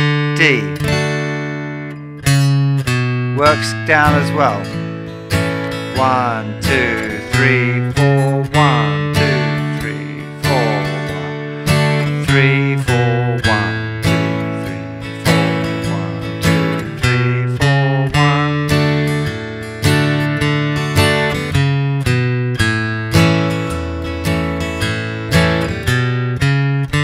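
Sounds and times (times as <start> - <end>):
acoustic guitar strumming chords: 0.0 - 27.0.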